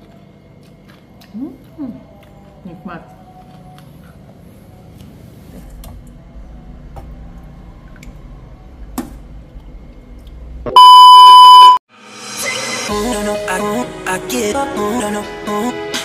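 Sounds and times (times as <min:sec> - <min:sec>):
electronic beep tone: 0:10.7 - 0:11.8.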